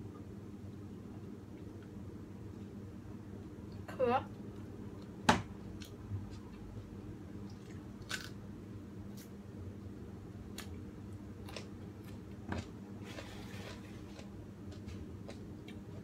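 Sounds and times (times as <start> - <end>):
steady low hum: 0.0 - 16.0
chewing clicks and mouth noises: 11.4 - 16.0.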